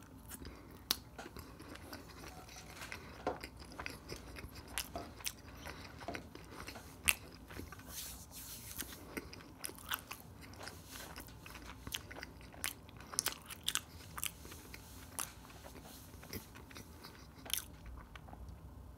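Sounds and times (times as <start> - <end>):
chewing crunchy food: 0.0 - 18.7.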